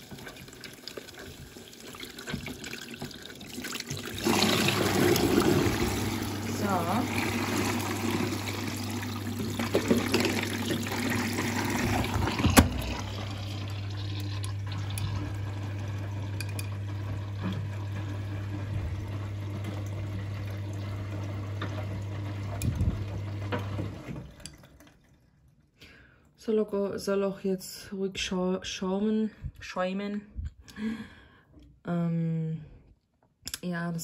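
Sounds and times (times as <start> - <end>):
washing machine hum: 0.0 - 25.4
water rushing into washing machine: 0.0 - 25.6.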